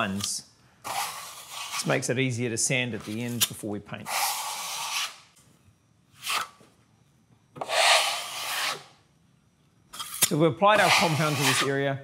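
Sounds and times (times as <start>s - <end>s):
plastering knife scraping: 0.0s - 2.0s, 2.9s - 5.3s, 6.2s - 6.6s, 7.6s - 8.9s, 9.9s - 11.8s.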